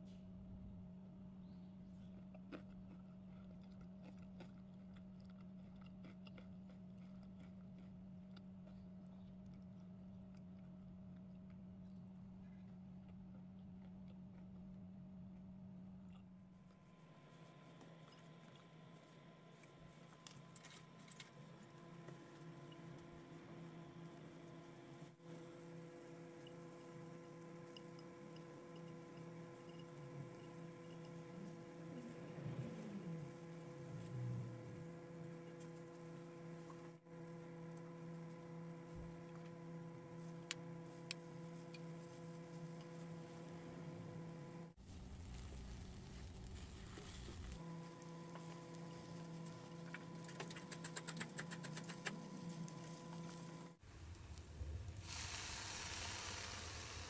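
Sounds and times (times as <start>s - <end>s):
low hum: 0.0s - 57.0s
faint chewing: 1.9s - 15.5s
leek crackling in a wok: 44.8s - 49.6s, 53.9s - 57.0s.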